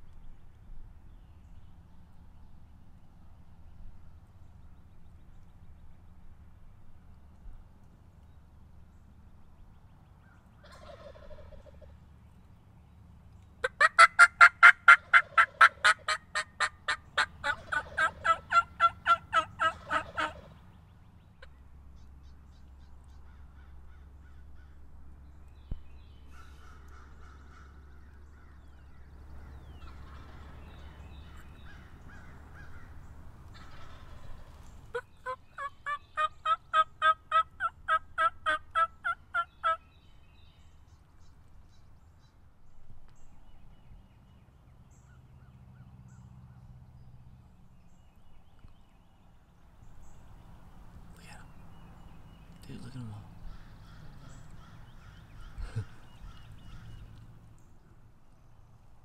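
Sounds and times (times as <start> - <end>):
turkey yelps: 10.6 - 11.8, 13.6 - 20.6, 31.2 - 39.8.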